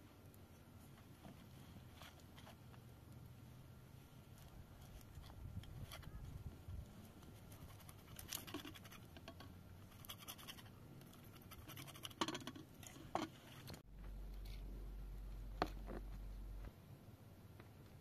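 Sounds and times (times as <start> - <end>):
steady low hum: 12.7 - 18.0.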